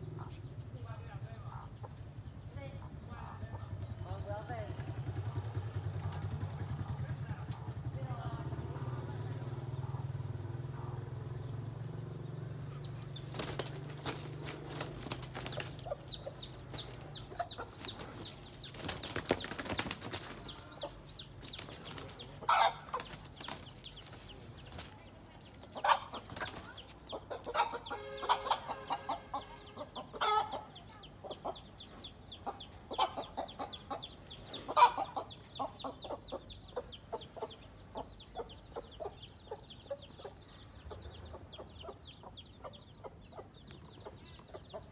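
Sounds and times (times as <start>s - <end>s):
chicks peeping: 5.1s - 44.9s
wing flapping: 13.0s - 27.1s
hen squawking and clucking: 13.2s - 24.2s, 25.7s - 31.7s, 32.4s - 36.3s.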